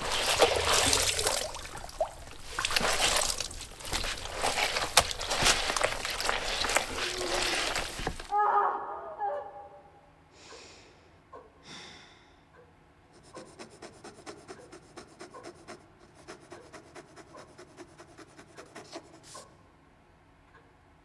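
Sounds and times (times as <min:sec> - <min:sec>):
person breathing: 0:10.3 - 0:12.5
dip pen scratching on paper: 0:13.2 - 0:19.5.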